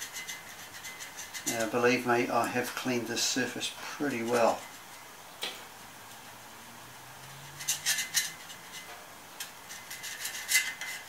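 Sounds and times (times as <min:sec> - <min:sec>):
metal tool scraping and tapping metal: 0:00.0 - 0:03.0, 0:07.2 - 0:11.0.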